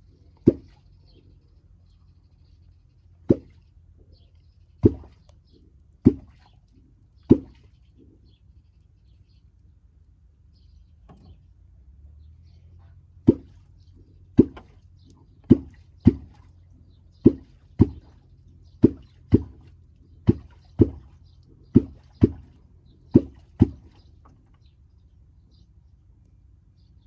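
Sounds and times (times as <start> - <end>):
catfish clonk plopping on water: 0.4 - 0.8, 3.3 - 3.6, 4.8 - 5.2, 7.3 - 7.7, 13.2 - 13.7, 14.4 - 14.8, 15.5 - 16.5, 17.2 - 18.2, 18.8 - 22.6, 23.2 - 24.0.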